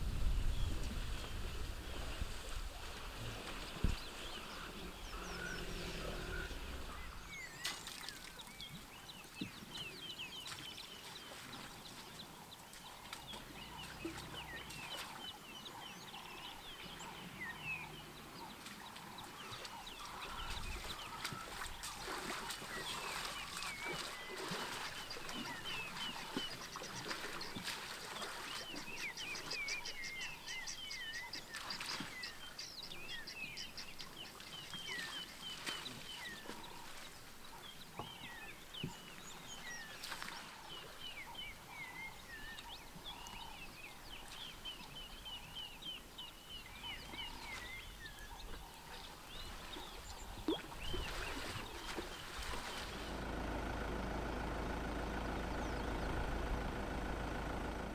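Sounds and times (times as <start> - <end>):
birds chirping and whistling: 28.5 - 36.7.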